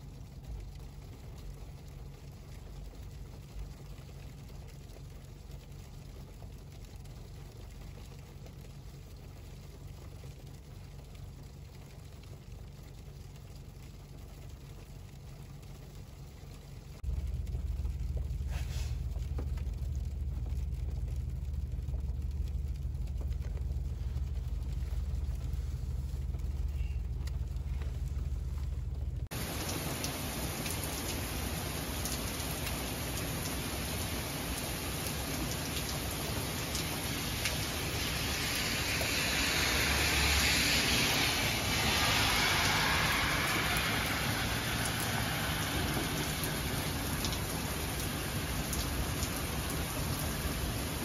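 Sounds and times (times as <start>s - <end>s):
car engine rumble from inside: 0.0s - 51.0s
rain pattering on windshield: 0.0s - 51.0s
brief hiss: 18.5s - 19.0s.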